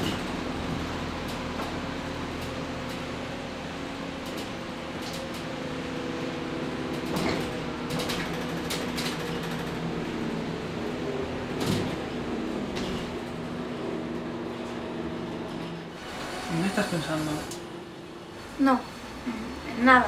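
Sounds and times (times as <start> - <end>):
bus engine drone: 0.0 - 20.0
rattles and knocks of fittings: 6.9 - 10.1.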